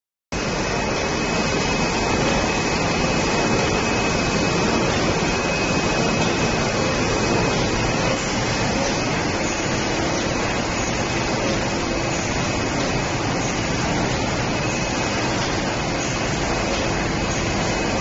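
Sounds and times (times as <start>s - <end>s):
high-pitched whine: 0.4s - 18.0s.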